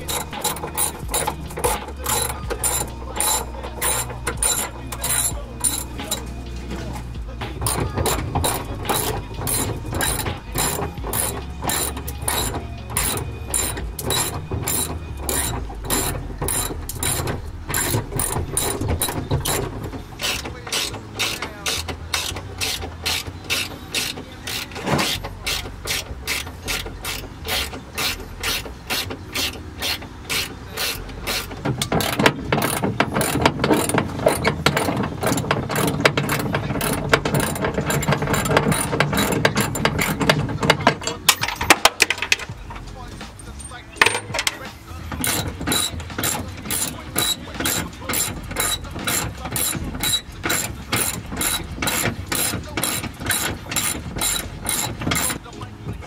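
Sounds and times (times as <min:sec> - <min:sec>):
socket ratchet clicking: 0:00.0 - 0:06.4, 0:07.6 - 0:42.5, 0:43.5 - 0:55.4.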